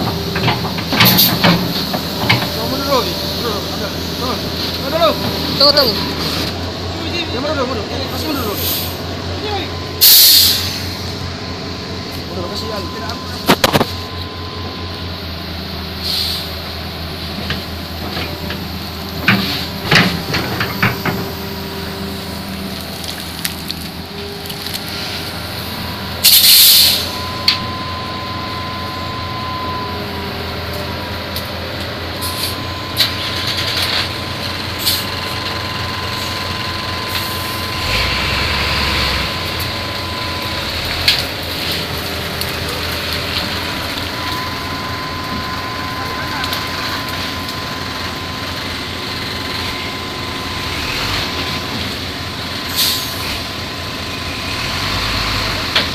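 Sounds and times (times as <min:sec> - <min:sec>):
metal clanks: 0:00.0 - 0:03.1
high whine: 0:00.0 - 0:54.4
diesel engines running: 0:00.0 - 0:55.9
air hiss: 0:10.0 - 0:11.1, 0:16.0 - 0:16.6.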